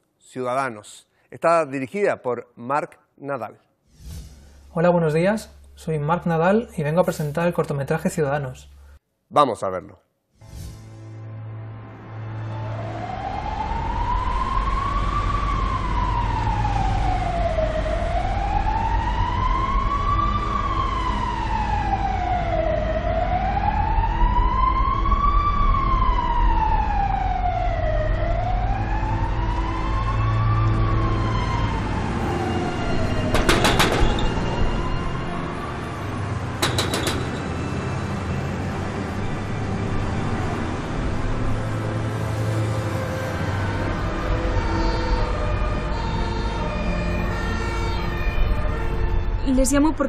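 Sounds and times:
siren wailing: 12.4 - 49.6.

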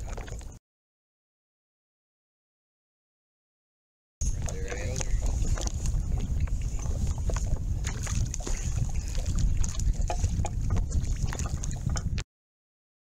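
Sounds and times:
water splashing against boat: 0.0 - 0.6, 4.2 - 12.2
wind buffeting microphone: 4.2 - 12.2.

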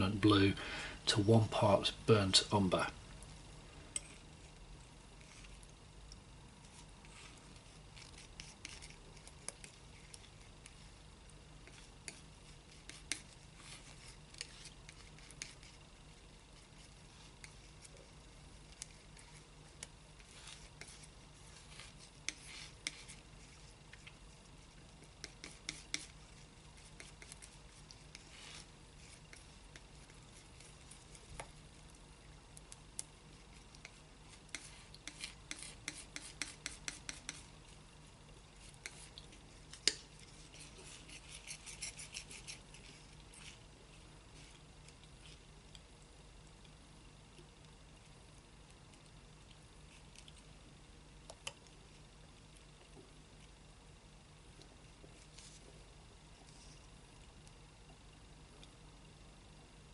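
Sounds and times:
low steady hum: 0.0 - 59.9
palette knife scraping paint: 6.7 - 10.9, 11.6 - 15.9, 16.5 - 31.3, 33.3 - 37.5, 38.6 - 43.6.

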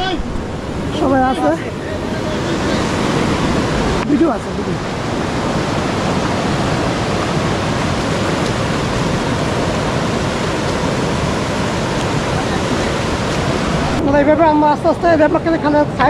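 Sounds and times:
stream rapids rushing over boulders: 0.0 - 16.0.

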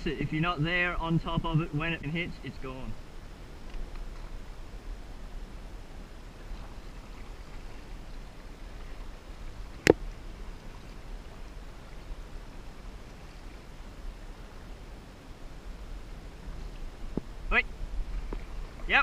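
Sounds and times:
steady low rumble: 0.0 - 19.0
paddle splashing in water: 6.4 - 14.7.

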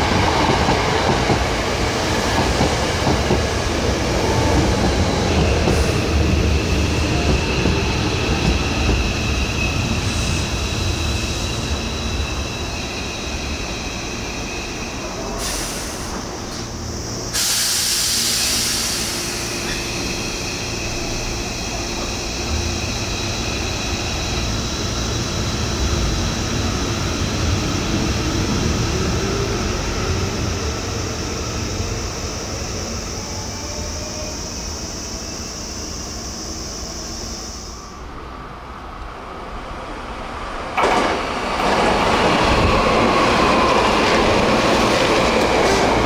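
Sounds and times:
air brake hiss: 15.3 - 16.7, 17.3 - 20.4.

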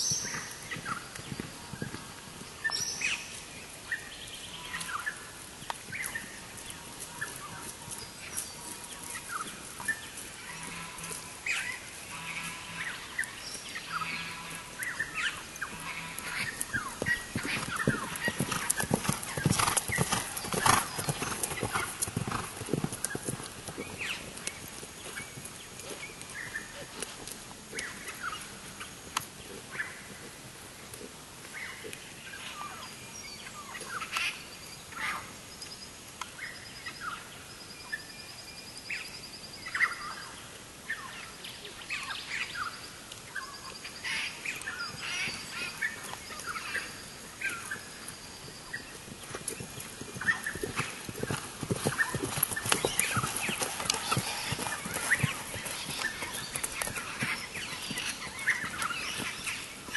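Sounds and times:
horse hooves on turf: 0.0 - 3.8, 4.6 - 32.4, 44.0 - 59.9
wild birds chirping: 0.0 - 30.3, 31.0 - 59.9.

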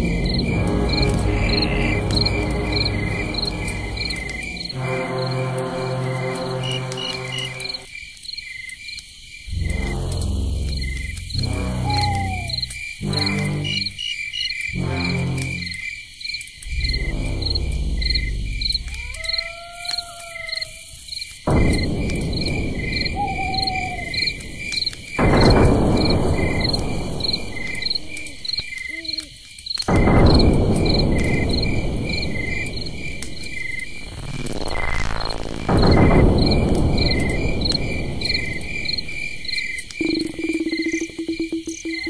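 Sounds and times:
cricket-like chirping: 0.0 - 42.0
loud hissing swells: 20.1 - 28.9, 30.1 - 40.0.

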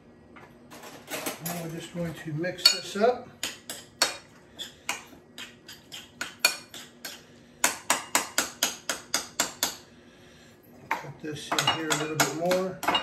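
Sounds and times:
utensil clinking against bowl: 10.9 - 13.0.

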